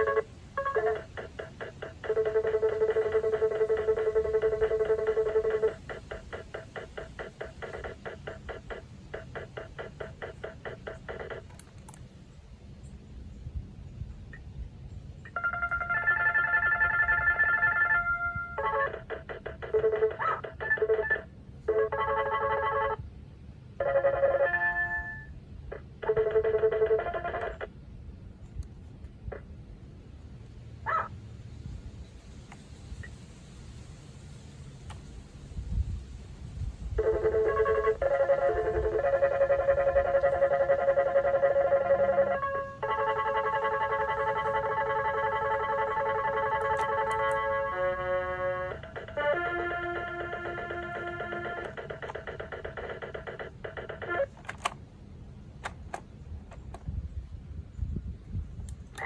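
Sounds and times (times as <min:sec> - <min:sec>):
glitchy toy keyboard beeps: 0:00.0 - 0:11.6, 0:15.3 - 0:23.0, 0:23.8 - 0:27.7, 0:37.0 - 0:54.4.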